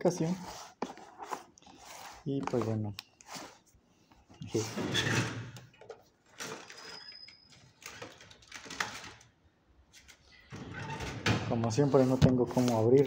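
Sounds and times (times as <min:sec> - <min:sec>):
cardboard box scraping on desk: 0:11.8 - 0:13.0.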